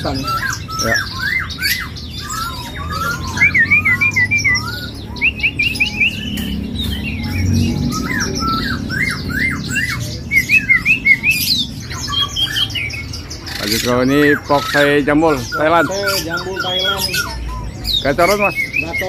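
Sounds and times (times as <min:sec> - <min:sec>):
low background murmur: 0:00.0 - 0:19.0
other birds chirping: 0:00.0 - 0:19.0
songbird whistling sliding notes: 0:00.3 - 0:12.7.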